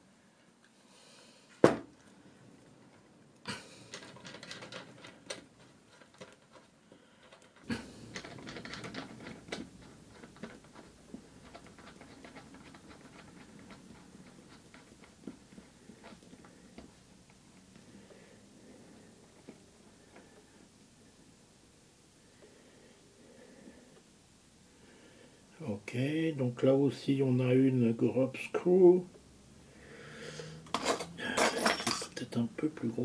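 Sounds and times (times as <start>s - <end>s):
metal parts clicking and rattling: 3.7s - 16.4s, 30.6s - 32.4s.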